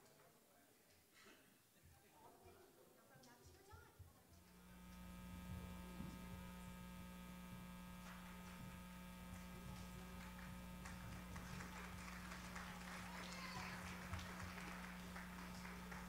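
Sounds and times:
electrical mains hum: 0:03.8 - 0:16.0.

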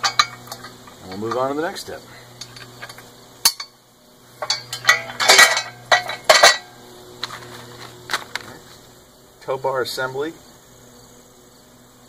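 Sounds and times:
metal hardware clinking and rattling: 0:00.0 - 0:01.7, 0:02.4 - 0:03.8, 0:04.4 - 0:08.6.

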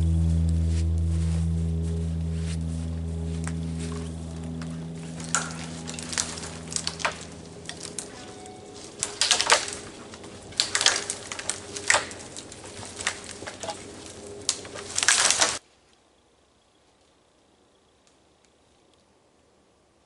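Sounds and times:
footsteps in deep snow: 0:00.0 - 0:15.6
dead branches snapping: 0:02.4 - 0:15.6.

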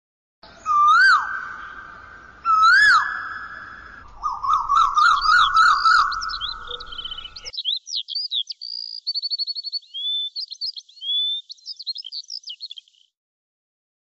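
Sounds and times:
bird warbling trill with chirps: 0:00.4 - 0:13.1
bird swooping whistles: 0:00.6 - 0:07.4.

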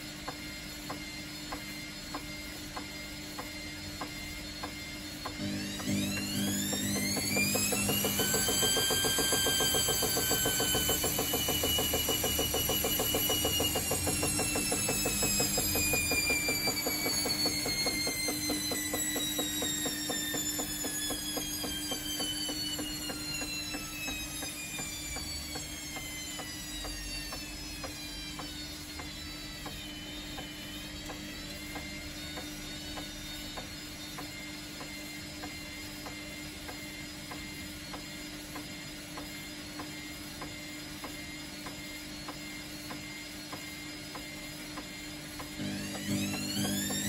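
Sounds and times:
washing machine drum motor whining: 0:00.0 - 0:47.0
turning drum beating: 0:45.4 - 0:47.0.

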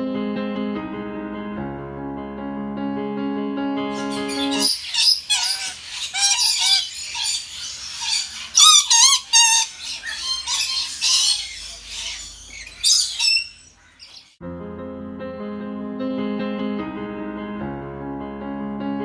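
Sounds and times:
parrots squawking: 0:04.0 - 0:14.4.

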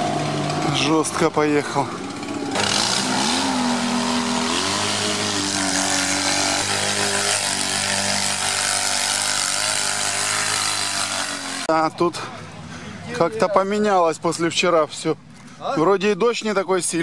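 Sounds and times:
off-road vehicle engine revving: 0:00.0 - 0:11.8.

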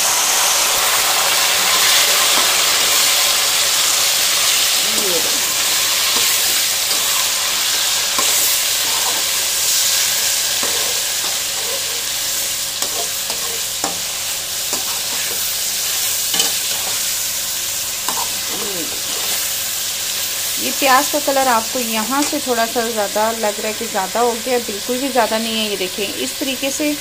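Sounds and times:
chicken sizzling in hot oil: 0:00.0 - 0:27.0
metal spatula scraping pan: 0:04.4 - 0:17.1, 0:18.1 - 0:19.5.

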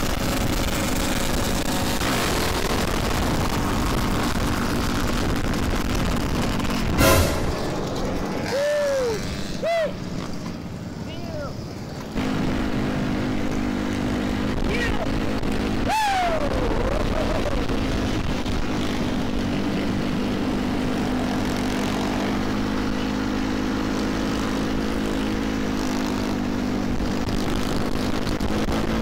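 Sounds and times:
road and wind noise: 0:00.0 - 0:29.0
vehicle engine droning: 0:00.0 - 0:29.0
short falling tone: 0:06.9 - 0:09.8.

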